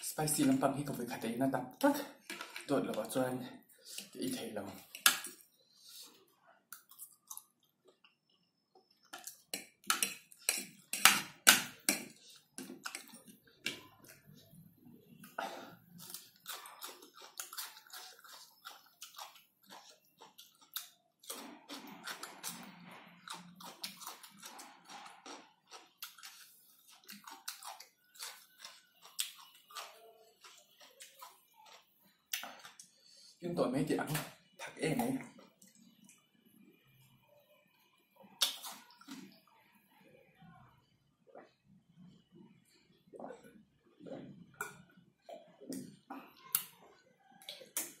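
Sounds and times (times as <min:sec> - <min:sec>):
person chewing noodles: 0:04.8 - 0:33.4
wet mouth clicks and smacks: 0:32.3 - 0:32.9, 0:38.4 - 0:39.3.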